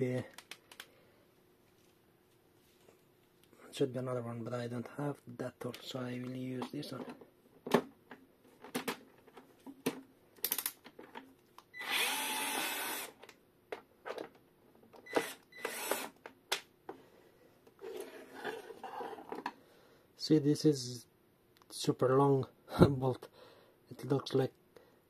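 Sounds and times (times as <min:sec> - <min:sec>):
electric screwdriver running: 0:11.8 - 0:13.2, 0:15.1 - 0:16.2.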